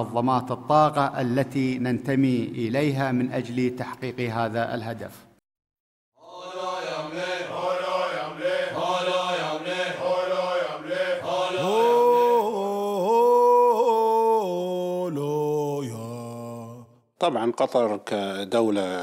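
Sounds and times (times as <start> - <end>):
men chanting: 6.2 - 17.0.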